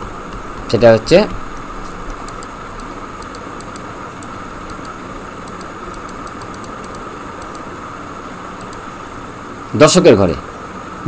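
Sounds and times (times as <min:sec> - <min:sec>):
room and microphone hiss: 0:00.0 - 0:11.0
faint high clicks: 0:08.6 - 0:08.8.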